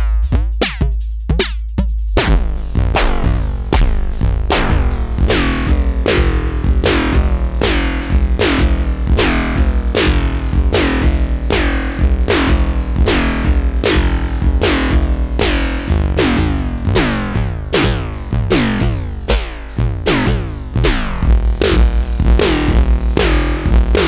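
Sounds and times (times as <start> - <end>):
synth drum loop: 0.0 - 24.0.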